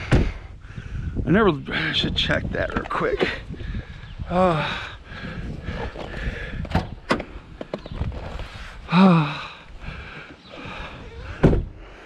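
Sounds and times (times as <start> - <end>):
heavy thump: 11.4 - 11.8.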